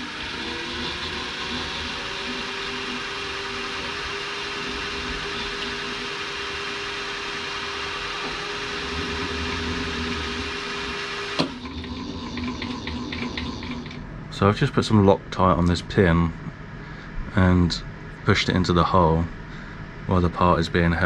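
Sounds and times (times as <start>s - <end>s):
milling machine motor whine: 0.0s - 15.1s.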